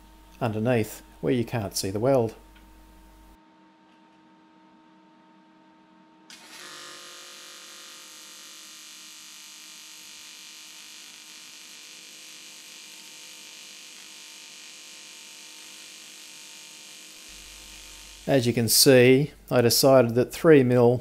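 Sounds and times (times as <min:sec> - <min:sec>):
welding arc buzzing hiss: 0:06.3 - 0:20.2.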